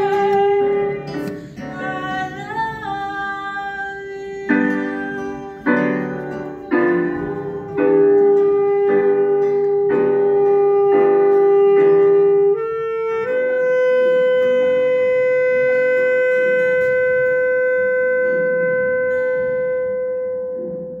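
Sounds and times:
acoustic guitar chords: 0.0 - 13.4
saxophone: 0.0 - 21.0
soft keyboard chords: 0.0 - 21.0.

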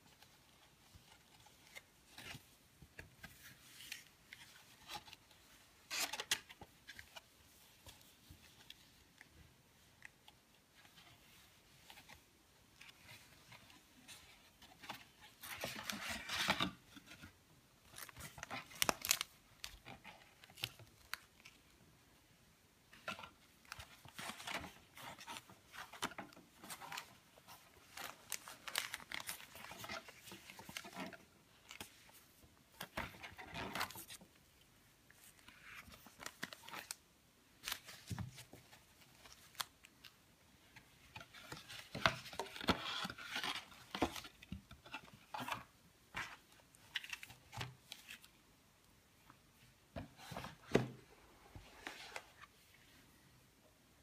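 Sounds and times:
paper rustling and sliding: 50.2 - 52.7.

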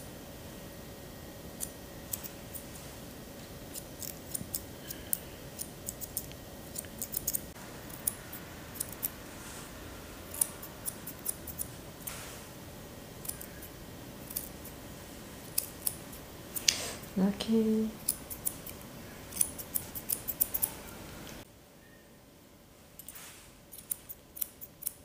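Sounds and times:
faint steady hum: 0.0 - 25.0
shears snipping fur: 1.6 - 2.8, 3.7 - 8.2, 10.3 - 12.4, 13.2 - 14.8, 15.4 - 17.1, 18.0 - 20.8, 23.0 - 25.0.

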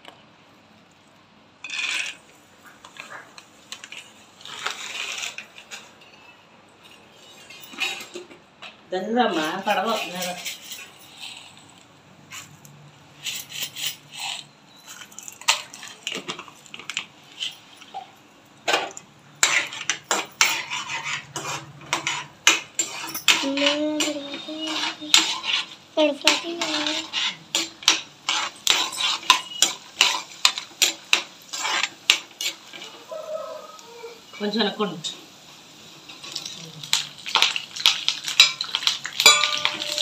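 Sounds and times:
metal ladle scraping a pan: 1.6 - 8.4, 13.2 - 18.1, 18.7 - 33.1, 36.0 - 40.0
peanuts frying in hot oil: 1.6 - 40.0.

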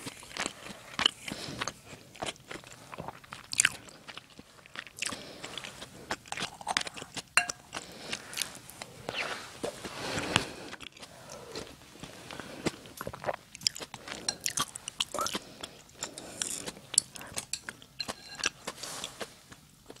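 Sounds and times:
chewing and swallowing: 0.0 - 20.0
utensils clinking in ceramic bowl: 7.4 - 7.6, 16.1 - 18.6.

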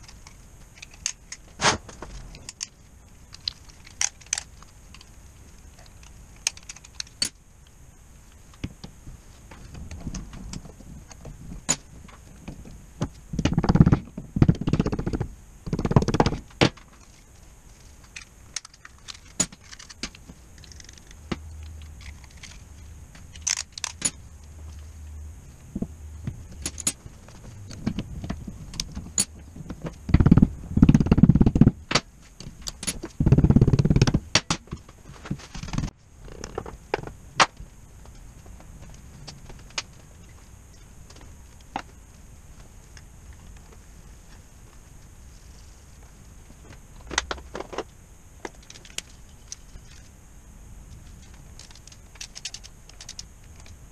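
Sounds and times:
metal parts clinking and scraping: 0.0 - 2.7, 18.0 - 24.2, 26.5 - 27.8
rubbing and handling noise: 8.2 - 50.2.

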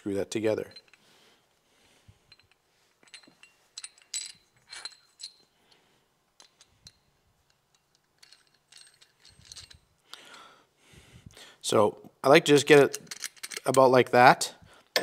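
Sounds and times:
small metal parts clinking: 0.7 - 1.0, 2.3 - 5.6, 6.4 - 10.4, 12.9 - 13.8.

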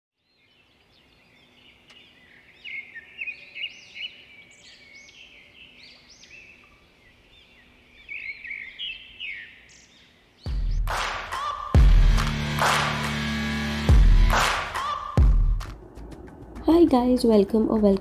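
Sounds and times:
small birds chirping: 0.2 - 10.9.

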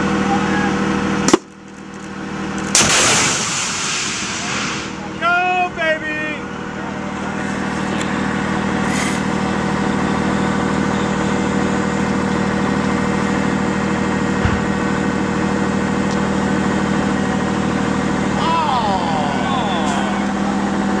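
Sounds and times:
vehicle engine idling: 0.0 - 21.0.

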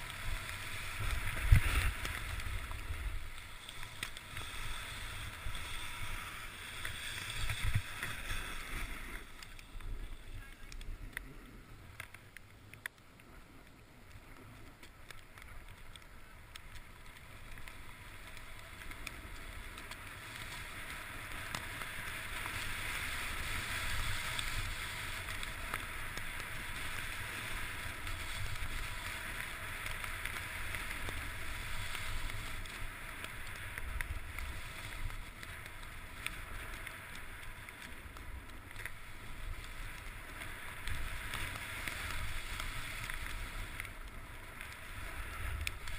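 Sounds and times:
wind rumble on microphone: 0.0 - 11.9
skis sliding over snow: 0.0 - 45.9.

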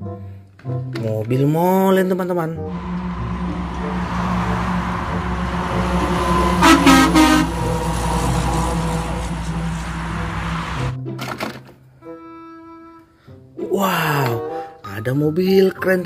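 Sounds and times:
diesel truck passing: 2.6 - 11.0
truck horn blasts: 2.7 - 11.0.

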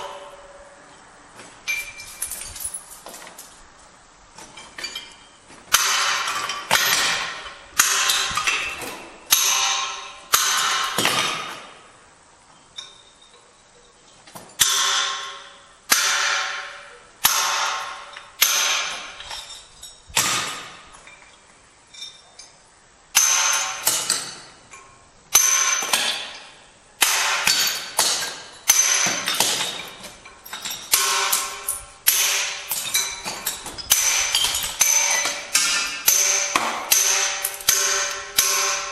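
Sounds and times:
hammer striking steel chisel: 23.2 - 24.5, 25.4 - 38.9.

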